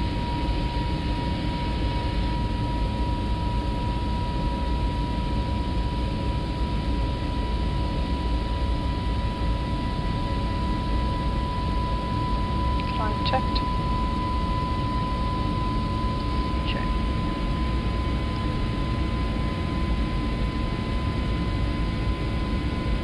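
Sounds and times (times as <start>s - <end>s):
airflow and engine rumble: 0.0s - 23.0s
constant high tone: 9.7s - 17.4s.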